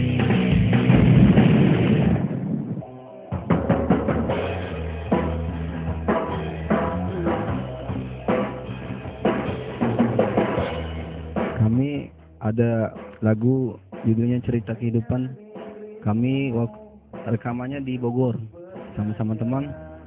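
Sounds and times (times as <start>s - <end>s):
drum kit hits and cymbals: 0.0s - 12.2s, 12.8s - 14.6s, 15.5s - 18.0s
loud music: 0.0s - 20.0s.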